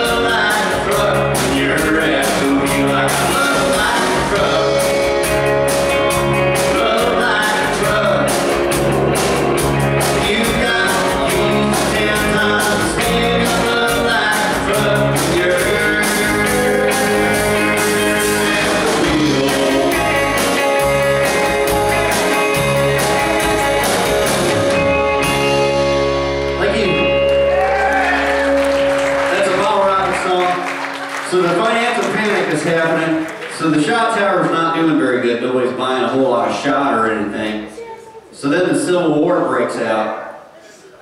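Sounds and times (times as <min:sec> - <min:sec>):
drum kit beat with cymbals: 0:00.0 - 0:25.9
electric guitars: 0:00.0 - 0:33.7.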